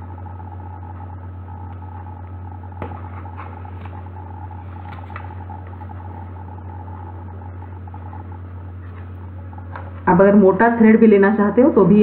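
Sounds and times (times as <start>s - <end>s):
low background hum: 0.0s - 12.0s
card stock rustling: 4.6s - 5.8s.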